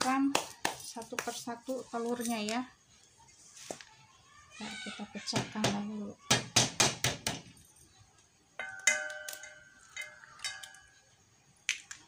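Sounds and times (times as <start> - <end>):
egg knocking on metal bowl: 8.6 - 10.9
metal bowl ringing: 8.6 - 11.0.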